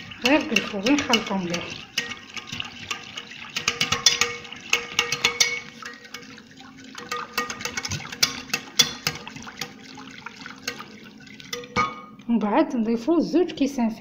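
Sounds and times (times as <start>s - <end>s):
whisk clicking against bowl: 0.0s - 11.8s
liquid sloshing: 0.0s - 12.4s.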